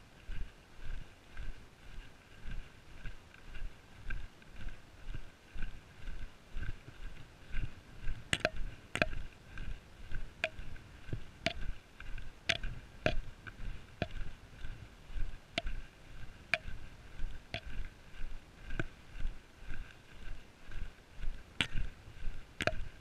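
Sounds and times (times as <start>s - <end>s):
footsteps on sandy track: 0.0s - 23.0s
trekking pole clicking on ground: 8.1s - 9.7s, 10.4s - 14.3s, 15.6s - 15.8s, 16.5s - 19.0s, 21.6s - 22.0s, 22.6s - 23.0s.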